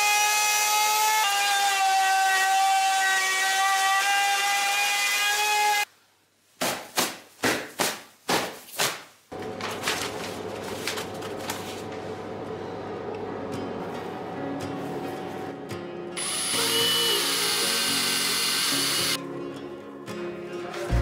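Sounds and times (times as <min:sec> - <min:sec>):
hands slapping trousers: 0:06.6 - 0:09.2
electric router whining: 0:16.2 - 0:19.2.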